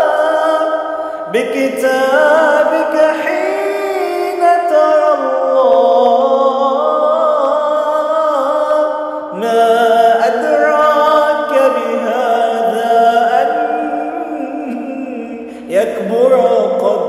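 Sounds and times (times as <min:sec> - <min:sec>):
man singing wordless melody: 0:00.0 - 0:17.0.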